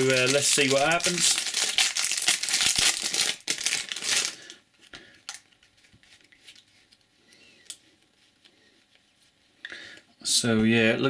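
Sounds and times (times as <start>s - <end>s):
plastic wrapper crinkling: 0.0s - 7.0s.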